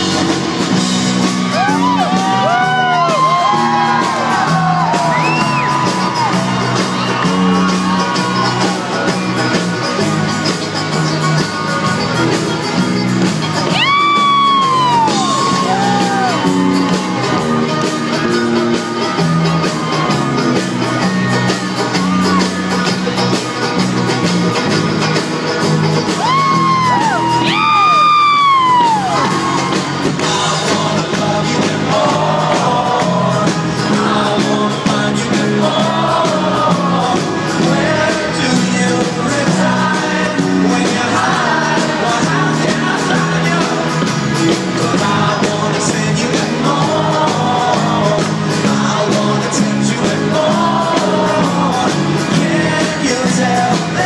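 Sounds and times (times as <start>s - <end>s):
live folk-rock band playing: 0.0s - 54.0s
audience whooping: 1.1s - 10.2s, 13.6s - 24.8s, 26.0s - 31.0s.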